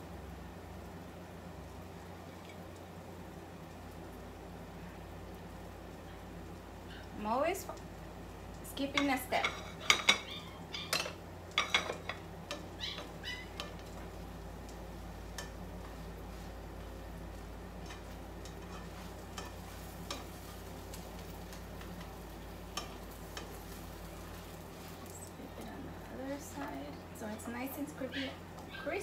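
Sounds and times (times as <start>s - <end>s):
soft sizzle of frying: 0.0s - 29.0s
metal tongs scraping a frying pan: 8.9s - 14.0s, 17.8s - 21.3s, 22.7s - 25.1s.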